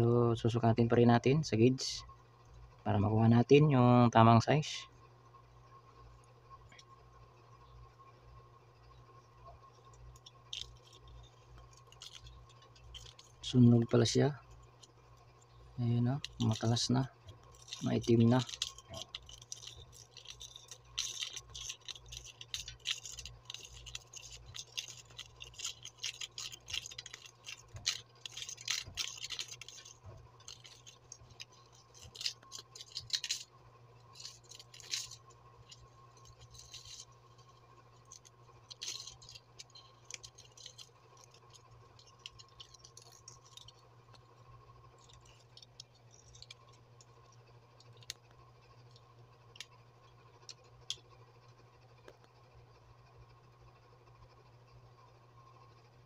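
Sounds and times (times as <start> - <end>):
faint steady hum: 0.0 - 56.0
fingers scratching wire coil: 9.5 - 51.2.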